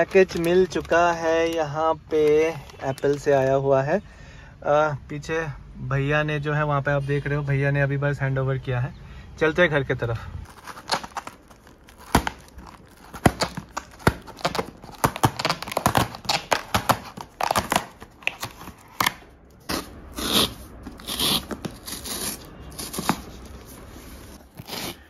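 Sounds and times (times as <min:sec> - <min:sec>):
cardboard rustling and scraping: 0:00.0 - 0:03.5, 0:10.5 - 0:25.0
cardboard tear strip ripping: 0:10.5 - 0:25.0.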